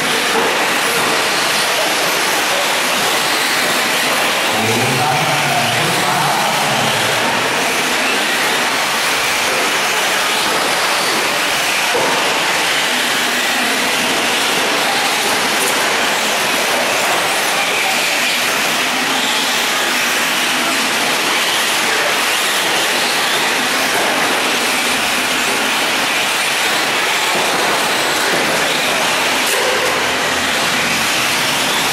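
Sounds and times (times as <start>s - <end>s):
rc truck motors whining: 6.6s - 31.9s.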